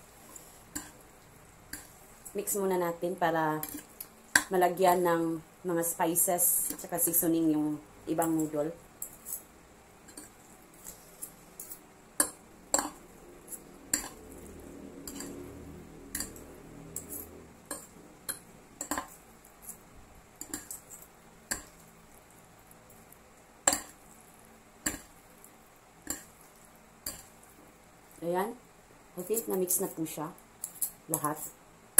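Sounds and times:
fork clinking against a plate: 0:15.1 - 0:15.4.

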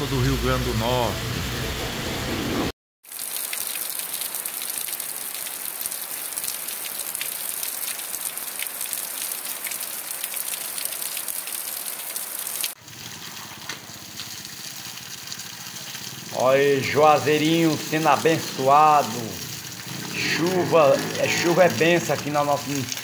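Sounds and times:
heavy rain on wet ground: 0:02.5 - 0:23.0.

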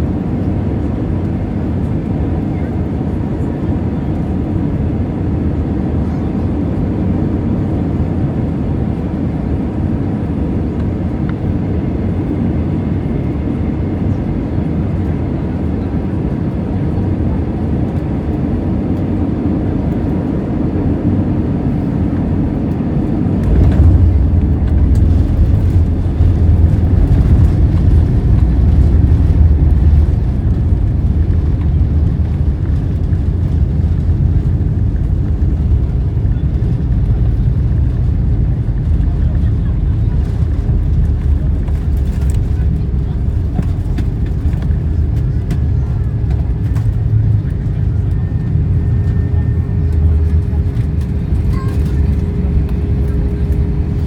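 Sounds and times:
airplane cabin rush and engine hum: 0:00.0 - 0:54.0
wheels rumbling on runway: 0:00.0 - 0:54.0.

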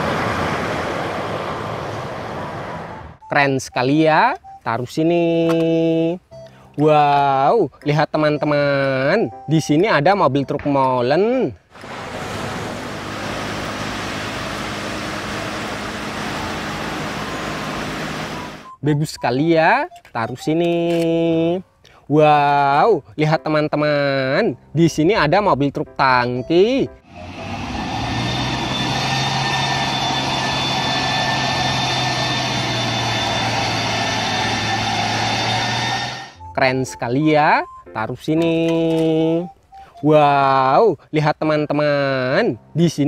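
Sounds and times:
road and tyre noise: 0:00.0 - 0:03.3, 0:11.6 - 0:18.8, 0:27.0 - 0:36.4
truck diesel engine hum: 0:00.0 - 0:03.3, 0:11.7 - 0:18.8, 0:26.9 - 0:36.5.

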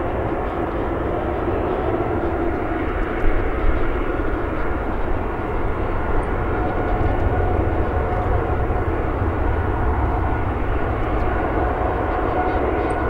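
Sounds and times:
faint steady whine: 0:00.0 - 0:13.0
jet engine roar: 0:00.0 - 0:13.0.

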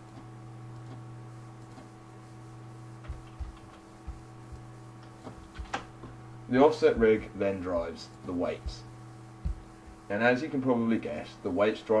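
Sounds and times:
electrical hum: 0:00.0 - 0:12.0
computer mouse clicks: 0:01.6 - 0:01.9.

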